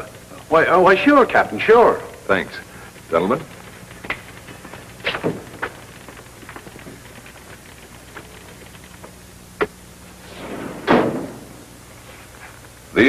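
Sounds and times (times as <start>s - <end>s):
low film soundtrack hum: 0.0s - 13.0s
faint knocks and clicks: 2.8s - 9.8s.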